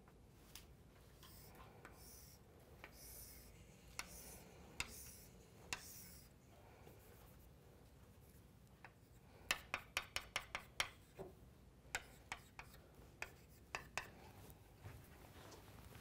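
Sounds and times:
chalk tapping on blackboard: 1.3s - 6.3s, 8.9s - 14.2s.

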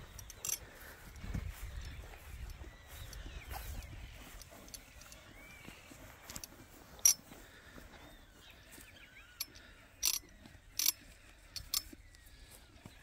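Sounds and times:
faint bird chirps: 0.0s - 13.0s
sharp clicks: 9.4s - 12.3s.

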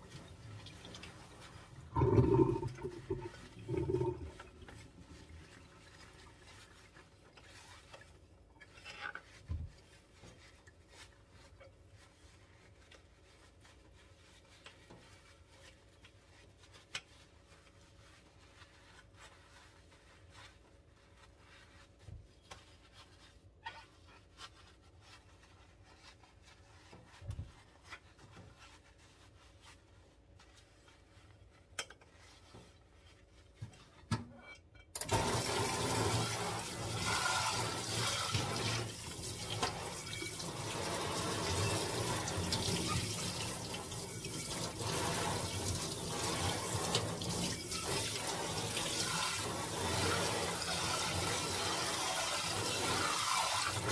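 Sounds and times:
water spraying into sink: 0.0s - 5.4s, 35.0s - 53.9s
sponge scrubbing a metal pot: 0.0s - 34.0s, 35.0s - 53.9s.

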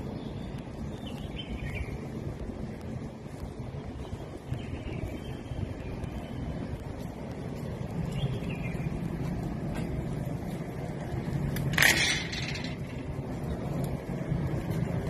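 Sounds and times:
wind rumble on microphone: 0.0s - 15.0s
loud scraping rustle: 11.6s - 13.0s.

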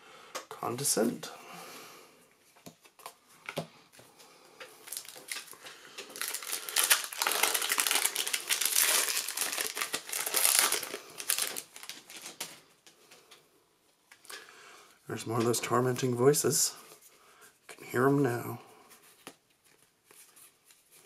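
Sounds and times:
foil wrapper crinkling and tearing: 4.8s - 12.7s.

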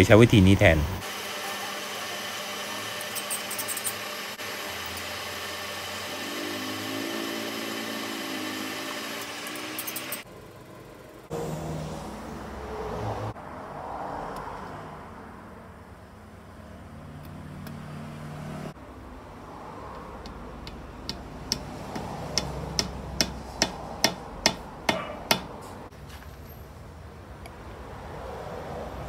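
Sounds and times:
hammer tapping metal: 20.2s - 25.6s.

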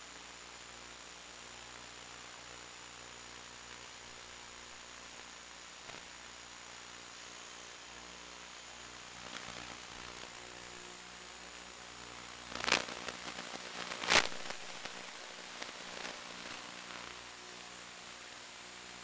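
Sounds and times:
faint hum: 0.0s - 19.0s
static hiss: 0.0s - 19.0s
crackling pops: 5.8s - 6.1s, 9.2s - 10.4s, 12.4s - 17.3s.

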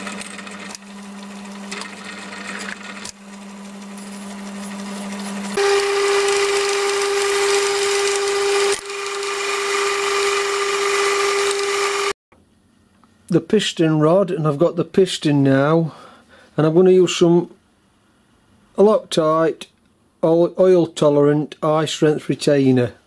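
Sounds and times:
metal lathe humming: 0.0s - 12.2s.

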